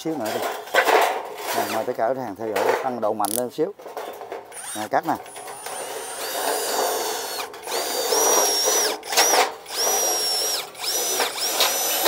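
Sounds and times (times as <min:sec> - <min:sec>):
power drill cutting sheet metal: 0:04.5 - 0:12.0.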